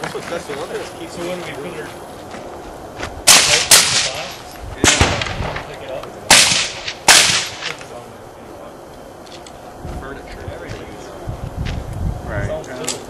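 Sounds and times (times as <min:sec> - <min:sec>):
silenced handgun shots: 0:03.3 - 0:05.7, 0:06.3 - 0:07.8.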